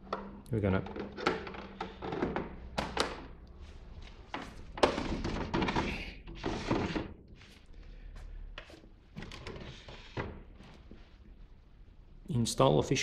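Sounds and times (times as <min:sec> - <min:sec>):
plastic scraping and rubbing: 0:04.4 - 0:07.6.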